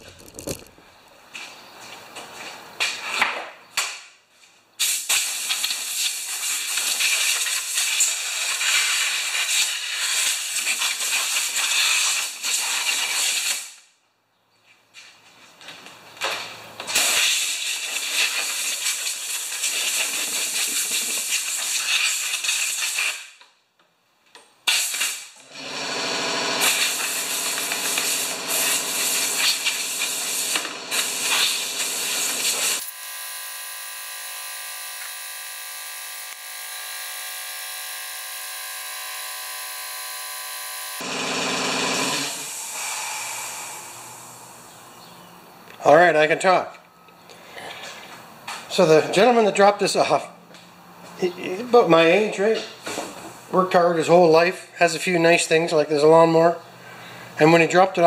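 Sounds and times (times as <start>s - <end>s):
air compressor humming: 25.4s - 44.7s
compressed air hissing: 26.6s - 32.8s, 42.2s - 44.7s.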